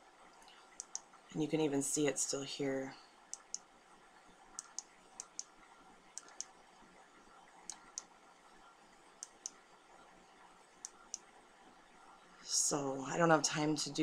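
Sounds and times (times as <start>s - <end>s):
faint room hiss: 0.0s - 14.0s
computer mouse clicks: 0.8s - 1.1s, 3.3s - 3.7s, 4.5s - 5.5s, 6.2s - 6.6s, 7.6s - 8.1s, 9.2s - 9.6s, 10.8s - 11.3s.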